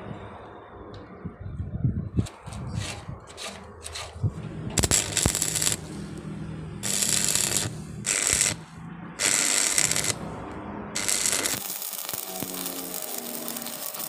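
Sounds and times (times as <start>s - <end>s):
welding arc crackle and hiss: 4.8s - 6.2s, 6.8s - 10.2s, 11.0s - 14.0s.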